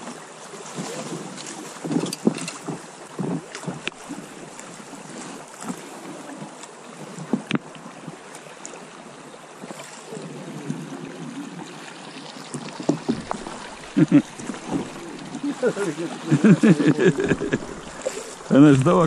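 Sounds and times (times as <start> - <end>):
river current rushing: 0.0 - 19.0
small knocks: 12.6 - 15.1.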